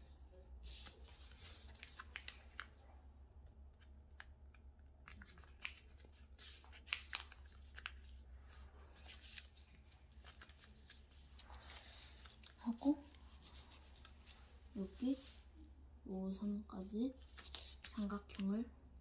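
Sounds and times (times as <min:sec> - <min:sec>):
paper being folded: 0:00.0 - 0:02.8, 0:03.7 - 0:15.4, 0:17.2 - 0:18.5.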